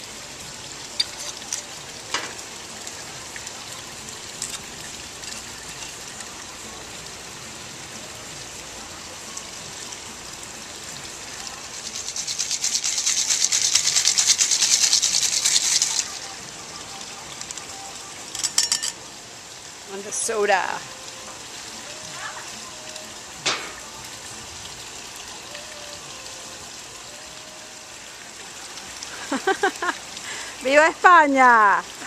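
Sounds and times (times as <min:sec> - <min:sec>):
ice rattling in cocktail shaker: 0:00.9 - 0:01.8, 0:11.4 - 0:16.4, 0:17.3 - 0:19.0.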